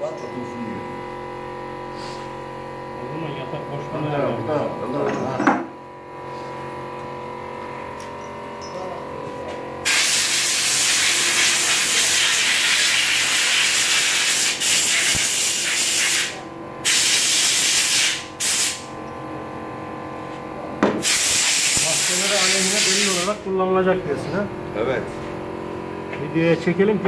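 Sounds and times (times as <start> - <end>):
compressed air blow gun hissing: 9.9 - 18.9, 21.0 - 23.3.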